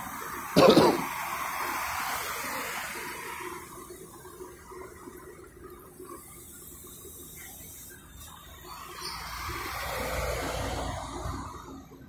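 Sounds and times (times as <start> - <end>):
street background: 0.0 - 2.0
car passing on road: 8.8 - 12.0.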